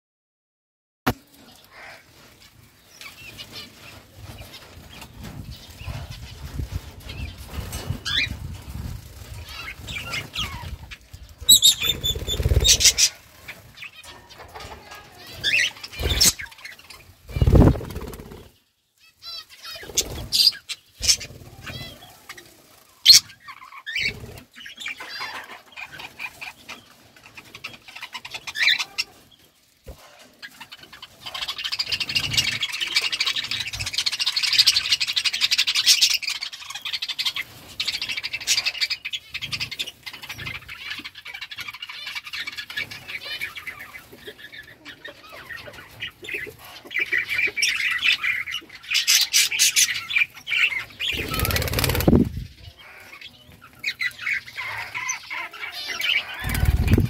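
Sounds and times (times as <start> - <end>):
budgerigars chirping: 11.4 - 13.2, 37.9 - 57.0.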